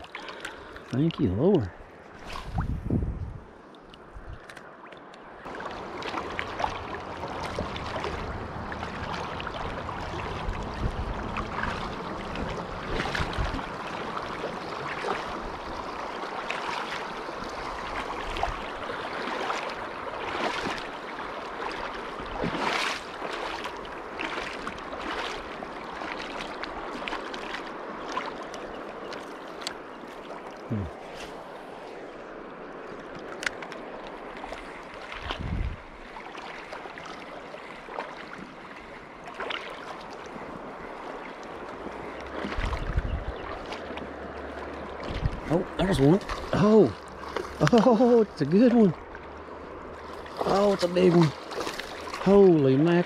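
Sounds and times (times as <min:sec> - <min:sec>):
water splashes: 0:00.0 - 0:53.0
river water rushing over rocks: 0:05.0 - 0:35.2, 0:43.4 - 0:53.0.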